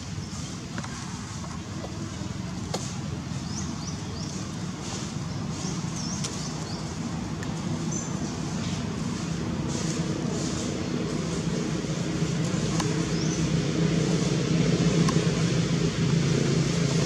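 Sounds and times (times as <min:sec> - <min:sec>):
steady low rumble: 0:00.0 - 0:17.0.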